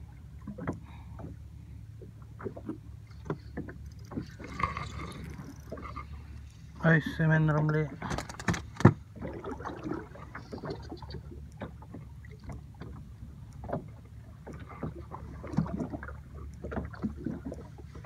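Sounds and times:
water slapping against metal hull: 0:02.3 - 0:06.2, 0:07.4 - 0:18.0.

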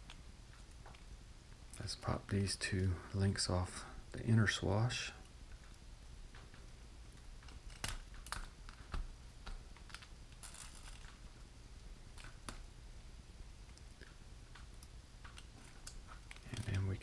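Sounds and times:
sharp plastic snaps: 0:05.5 - 0:11.2.

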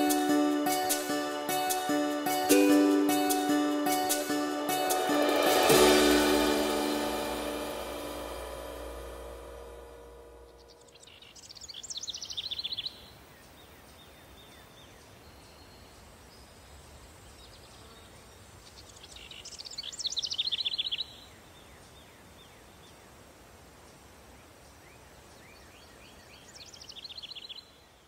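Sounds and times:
faint outdoor background noise: 0:00.0 - 0:28.0
songbird singing: 0:09.6 - 0:23.2, 0:24.4 - 0:28.0.

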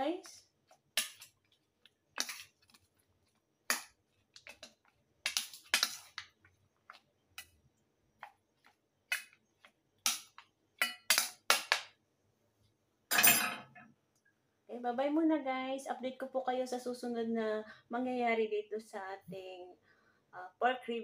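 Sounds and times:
metal spoon clinking on steel bowl: 0:10.1 - 0:11.5.

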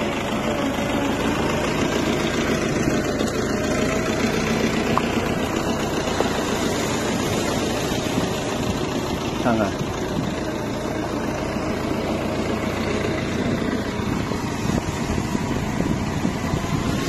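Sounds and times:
tractor diesel engine running: 0:00.0 - 0:17.0.

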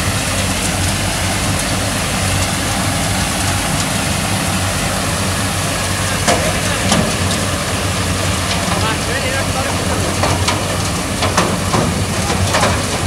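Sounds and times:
road sweeper mechanical drone: 0:00.0 - 0:13.0.

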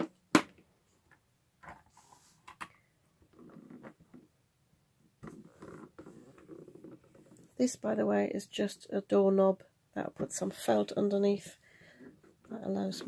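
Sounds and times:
hands rubbing and shuffling: 0:01.6 - 0:02.6.

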